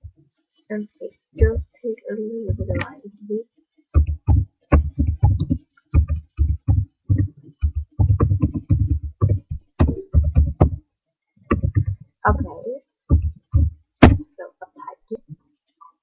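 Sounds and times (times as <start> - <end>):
heavy low taps and knocks: 4.0 - 10.8, 11.5 - 12.5, 13.1 - 14.2.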